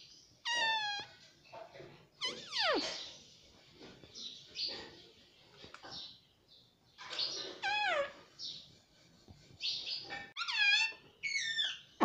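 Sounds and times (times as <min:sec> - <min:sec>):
parrot squawking: 0:00.4 - 0:01.1, 0:02.2 - 0:03.1, 0:07.5 - 0:08.3, 0:10.4 - 0:12.0.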